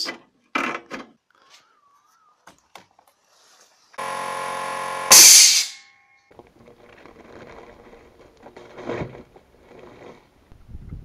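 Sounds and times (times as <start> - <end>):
air compressor buzzing hum: 4.0 - 5.8
air hissing: 4.0 - 5.8.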